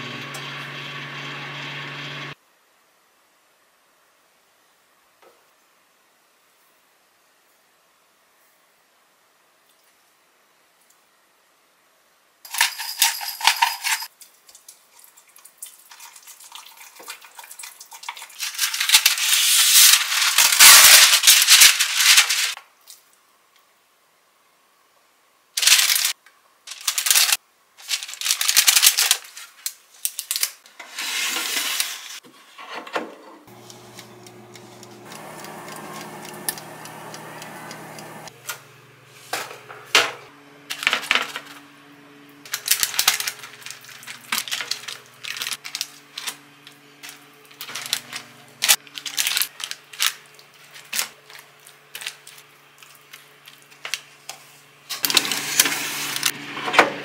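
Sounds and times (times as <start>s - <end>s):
parchment paper rustling: 18.2s - 22.6s, 25.6s - 32.2s, 42.5s - 56.3s.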